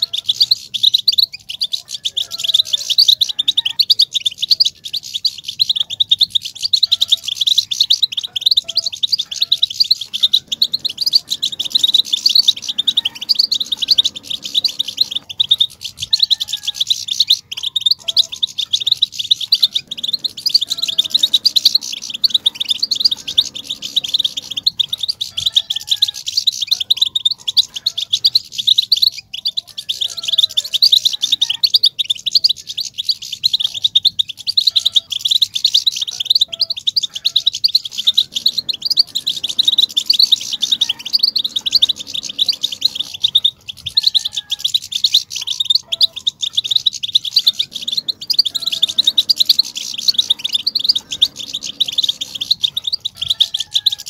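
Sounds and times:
finches chirping and twittering: 0.0s - 54.0s.

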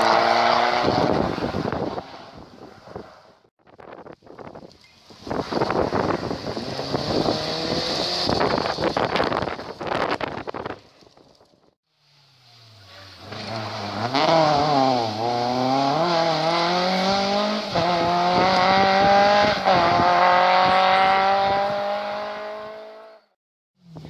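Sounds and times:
rally car engine accelerating: 6.5s - 9.4s, 12.6s - 23.3s.

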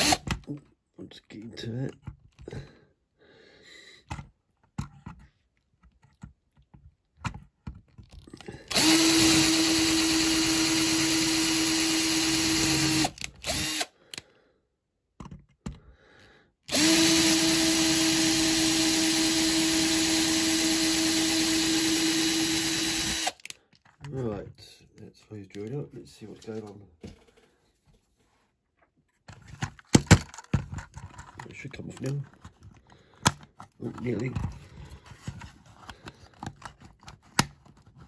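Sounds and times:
electric drill whining: 0.0s - 0.4s, 8.7s - 14.0s, 16.7s - 23.6s.

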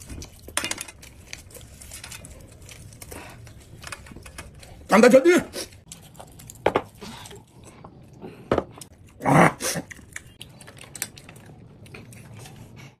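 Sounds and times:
man chewing wetly: 5.7s - 13.0s.

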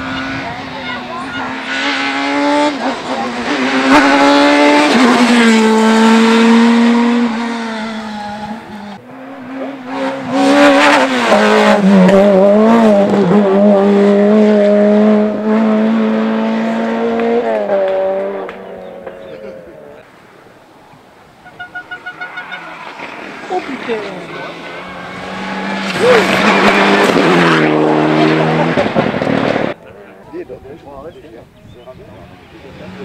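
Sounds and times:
rally car engine revving: 0.0s - 20.1s, 21.8s - 30.3s, 32.2s - 33.0s.

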